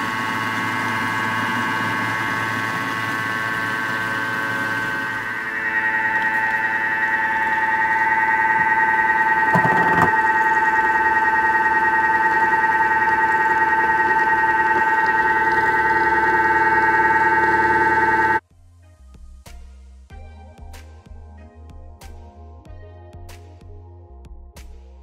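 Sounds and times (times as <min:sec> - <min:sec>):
food processor whine: 0:00.0 - 0:18.4.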